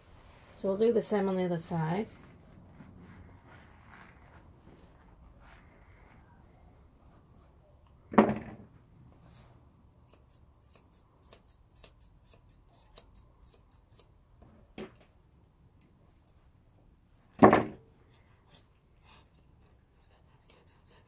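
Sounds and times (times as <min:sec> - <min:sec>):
scissors snipping hair: 0:10.0 - 0:14.1, 0:19.4 - 0:21.0
loud knock: 0:17.4 - 0:17.8.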